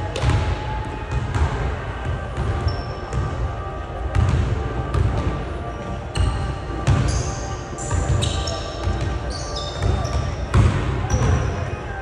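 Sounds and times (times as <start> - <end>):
basketball bouncing: 0.1 - 3.4, 4.1 - 5.4, 6.2 - 7.2, 7.9 - 11.5.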